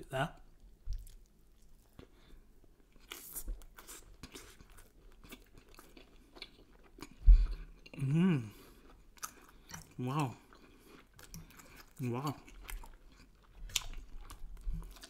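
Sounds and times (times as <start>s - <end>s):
close chewing: 2.8s - 15.0s
person humming mmm: 8.0s - 8.6s.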